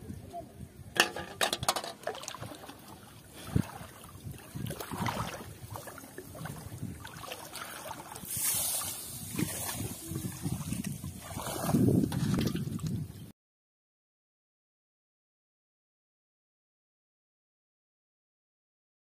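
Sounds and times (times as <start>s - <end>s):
water sloshing around wading legs: 1.0s - 13.2s.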